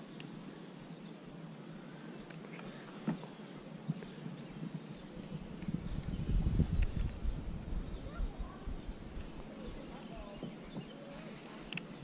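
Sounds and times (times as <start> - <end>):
faint wind: 0.0 - 12.0
small ticks: 10.8 - 12.0.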